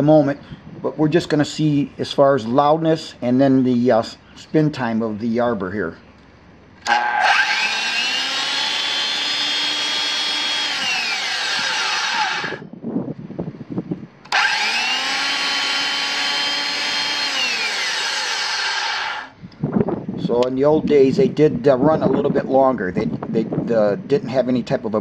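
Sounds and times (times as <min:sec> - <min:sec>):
circular saw motor whining: 0:06.8 - 0:12.6, 0:14.3 - 0:19.4.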